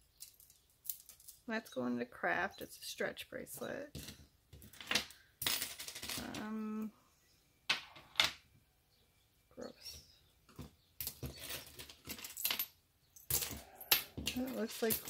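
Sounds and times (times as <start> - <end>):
metal bracelets clinking: 0.0 - 1.5, 9.7 - 15.0.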